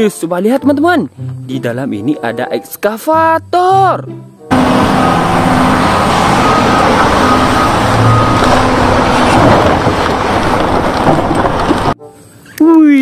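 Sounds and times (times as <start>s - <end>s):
excavator diesel engine running: 4.5s - 12.0s.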